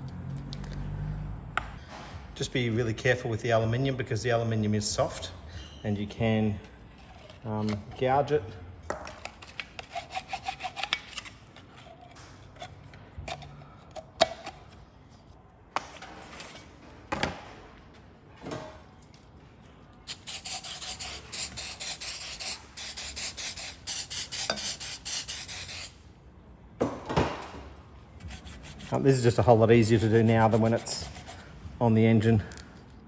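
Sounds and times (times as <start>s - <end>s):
hand scraper scraping metal: 20.3s - 25.9s, 29.8s - 31.4s.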